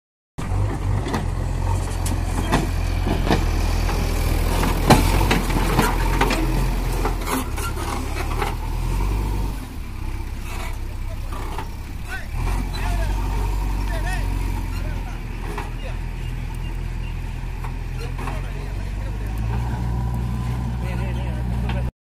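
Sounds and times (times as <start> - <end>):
diesel engine running: 0.4 - 21.9
sharp knocks and clanks: 0.6 - 8.6.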